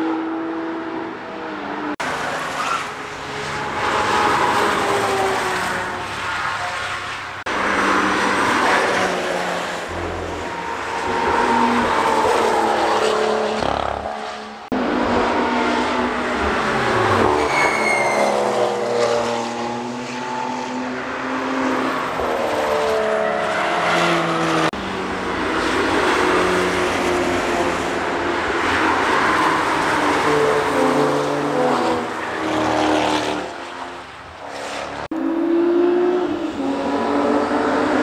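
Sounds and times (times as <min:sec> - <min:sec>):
high squeal: 0:16.8 - 0:18.6.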